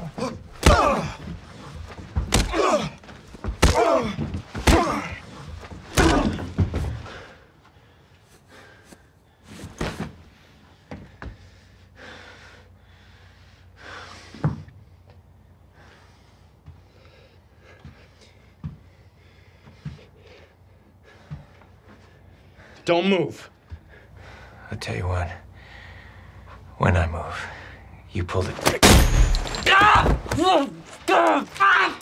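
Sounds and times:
pained cries and grunts: 0.0 - 1.4, 2.3 - 6.6
punches landing: 0.0 - 7.1, 28.6 - 31.6.

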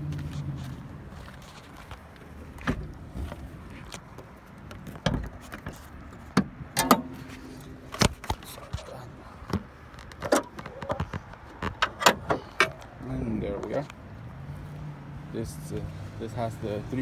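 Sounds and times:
car hood clicks and clunks: 2.6 - 3.3, 4.6 - 12.9.

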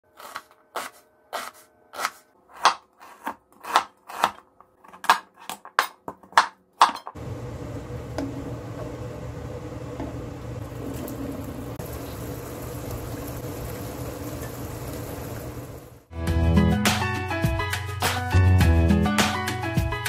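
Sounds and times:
knife cutting on cutting board: 0.2 - 7.0.

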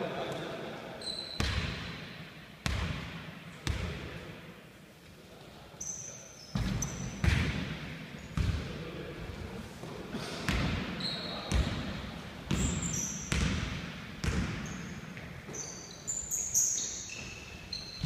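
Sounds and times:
sneakers squeaking: 1.0 - 2.0, 5.8 - 8.6, 10.5 - 18.0
basketball bouncing on wooden floor: 12.5 - 15.3.

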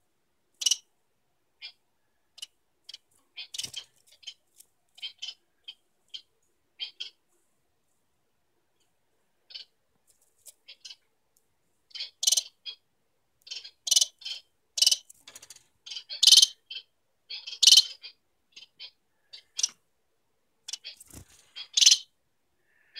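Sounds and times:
finch chirping: 0.6 - 0.9, 1.6 - 4.4, 5.0 - 7.2, 9.5 - 9.8, 10.6 - 11.1, 11.9 - 19.8, 20.7 - 22.1.

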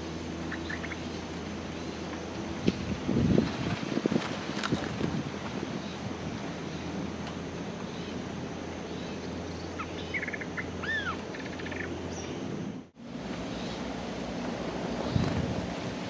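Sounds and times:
wind: 0.0 - 16.0
bird chattering and whistling: 9.8 - 12.0.

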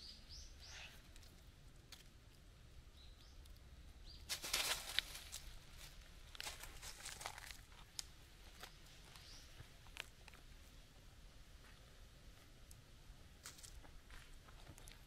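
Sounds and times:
small birds chirping: 0.0 - 1.5, 2.7 - 5.5, 8.0 - 10.8
rustling and crackling: 4.3 - 10.8.

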